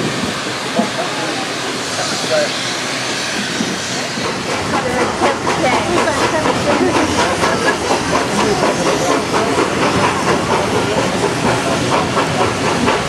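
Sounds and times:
steam hiss: 0:00.0 - 0:13.0
train rail noise: 0:00.0 - 0:13.0.

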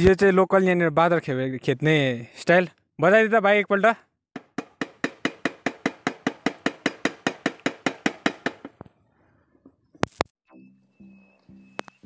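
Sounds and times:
noisemaker sharp knocks: 0:04.4 - 0:08.8.

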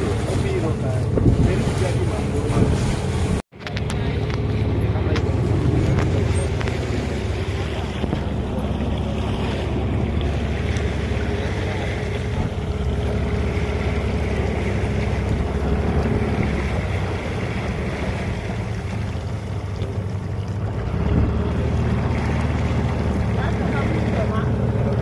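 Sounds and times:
wind buffeting microphone: 0:00.0 - 0:03.4
boat engine running: 0:00.0 - 0:25.0
water washing along hull: 0:00.0 - 0:25.0.

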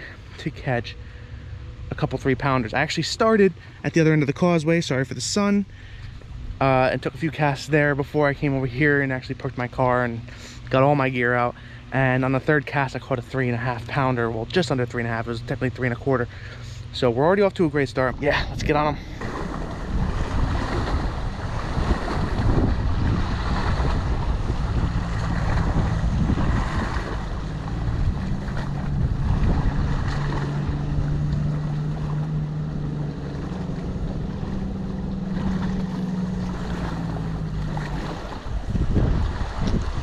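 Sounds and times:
small waves on water: 0:00.0 - 0:40.0
steady low drone: 0:00.0 - 0:40.0
wind buffeting microphone: 0:17.9 - 0:40.0.

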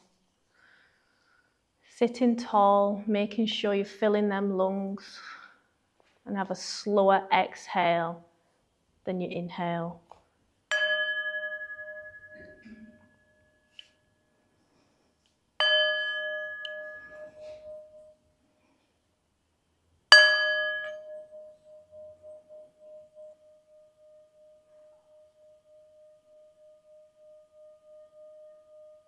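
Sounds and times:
singing bowl struck and ringing: 0:10.7 - 0:14.0, 0:15.6 - 0:18.2, 0:20.1 - 0:29.0.

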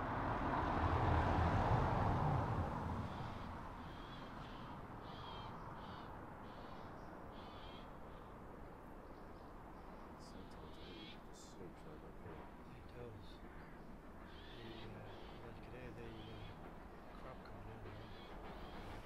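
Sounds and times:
train rumbling: 0:00.0 - 0:05.0, 0:09.6 - 0:19.0
bird calling: 0:03.1 - 0:08.3, 0:10.3 - 0:11.6, 0:13.2 - 0:19.0.

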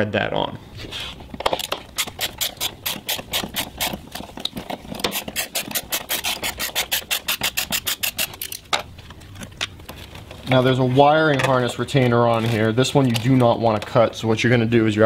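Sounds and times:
ratchet pawl clicking: 0:05.1 - 0:08.5.

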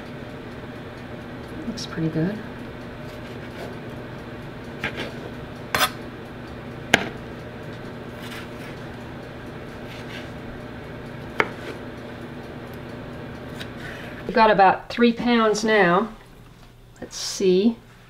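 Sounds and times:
low steady hum: 0:00.0 - 0:18.0
knife chopping on cutting board: 0:11.3 - 0:11.8.

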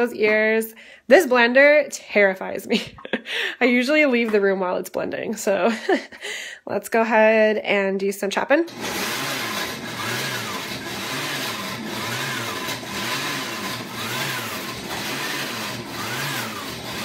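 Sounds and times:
blender running: 0:08.7 - 0:17.0.

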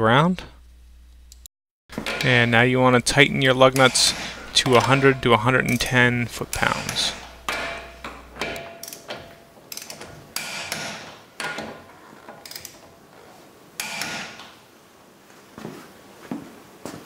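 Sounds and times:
metal clanks: 0:01.9 - 0:12.9
torque wrench clicking: 0:08.8 - 0:10.8, 0:12.4 - 0:12.8.

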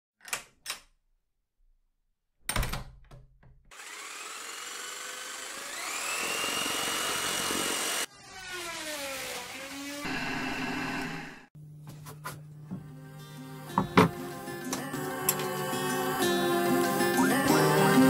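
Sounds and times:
power tool motor whining: 0:03.7 - 0:11.5.

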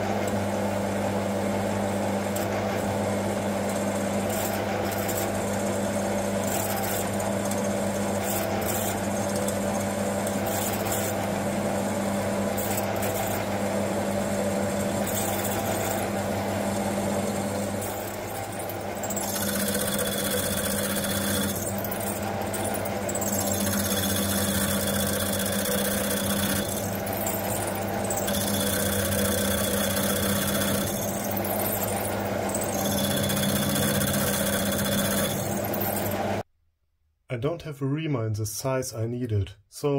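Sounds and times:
lathe motor hum: 0:00.1 - 0:36.4
drill bit cutting steel: 0:03.7 - 0:11.3, 0:12.6 - 0:13.6, 0:14.7 - 0:16.2, 0:16.8 - 0:36.4.

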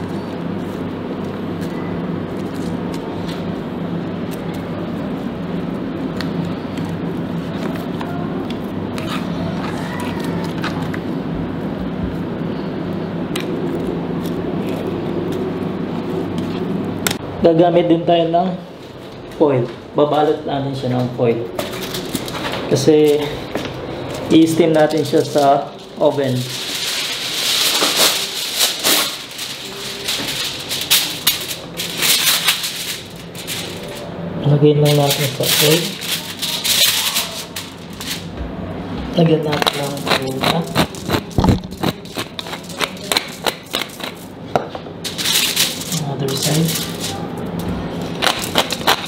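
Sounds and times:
steady low hum: 0:00.0 - 0:49.0
aluminium foil crinkling: 0:21.6 - 0:23.4, 0:24.1 - 0:34.2, 0:34.8 - 0:38.3, 0:39.4 - 0:44.4, 0:45.0 - 0:49.0.

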